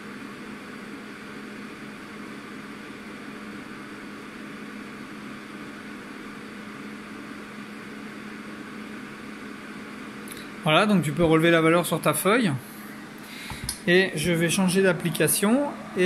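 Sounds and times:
low motor hum: 12.6 - 16.0
rush of drawn-in air: 12.8 - 16.0.

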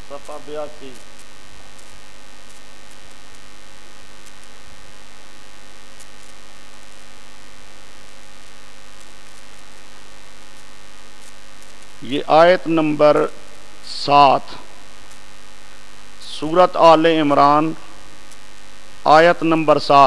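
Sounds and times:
electrical mains hum with hiss: 0.0 - 20.0
faint ticks: 0.2 - 3.5, 4.1 - 4.6, 5.9 - 7.0, 8.9 - 12.0, 15.0 - 15.3, 18.2 - 18.6.

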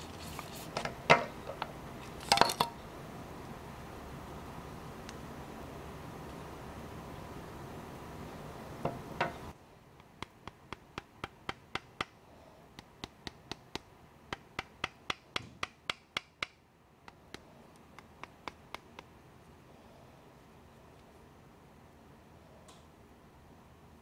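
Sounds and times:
rubbing scrape: 0.0 - 0.8.

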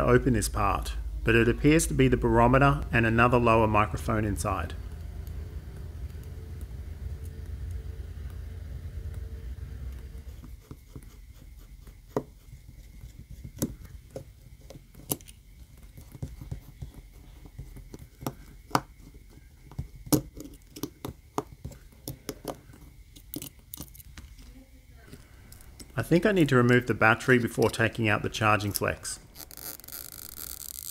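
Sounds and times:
low handling rumble: 0.0 - 10.5, 25.0 - 29.4.

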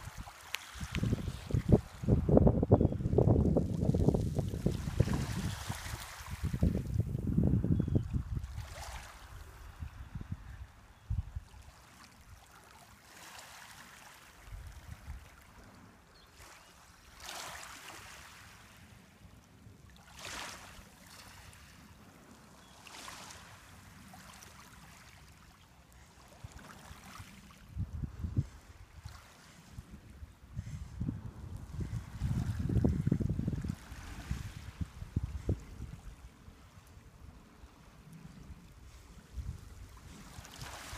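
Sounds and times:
small waves lapping on pebbles: 0.0 - 2.2, 3.4 - 7.0, 8.5 - 9.8, 11.6 - 15.7, 16.3 - 19.0, 19.9 - 27.7, 28.9 - 30.0, 39.8 - 40.9.

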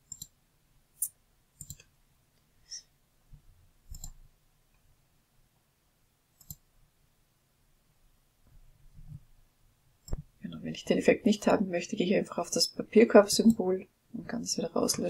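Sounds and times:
computer mouse clicking: 0.0 - 0.4, 1.6 - 1.9, 3.9 - 4.2, 6.4 - 6.7, 10.0 - 10.3.

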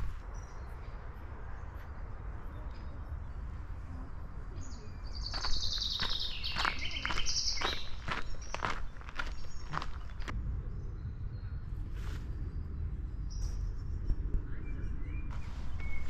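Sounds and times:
songbird trilling: 4.6 - 10.3
low steady rumble: 9.8 - 16.0.

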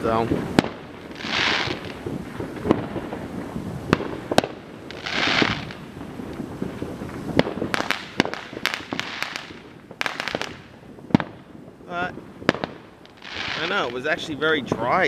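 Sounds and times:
firework hiss: 0.0 - 15.0
fireworks bangs: 0.0 - 15.0.

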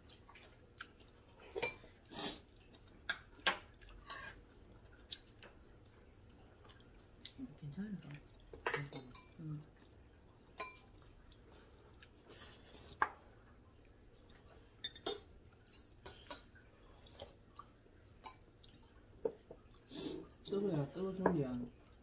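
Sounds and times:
cutlery clinking on ceramic bowls: 8.6 - 9.4, 10.6 - 10.9, 14.8 - 16.6.

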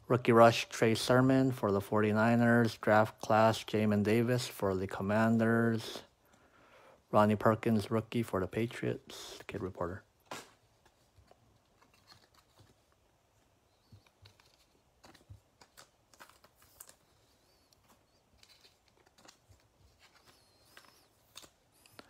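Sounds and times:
trading cards shuffling: 9.4 - 22.0.

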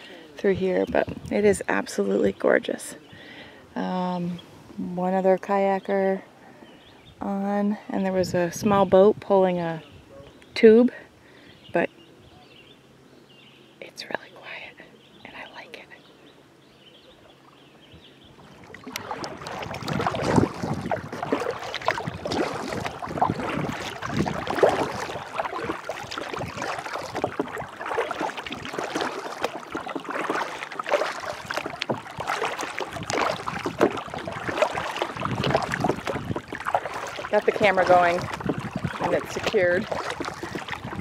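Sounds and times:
water splashing against kayak hull: 18.2 - 41.0.

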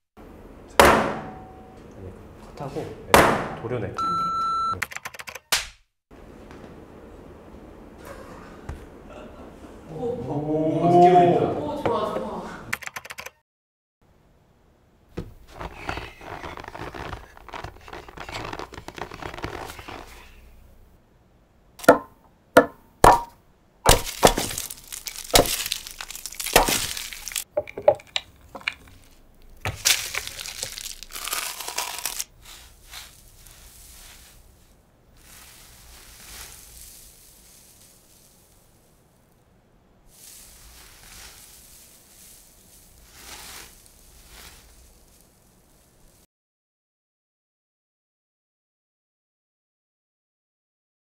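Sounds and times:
makeup powder cracking: 23.9 - 32.3
gritty crumbling: 23.9 - 39.4, 40.1 - 46.2.

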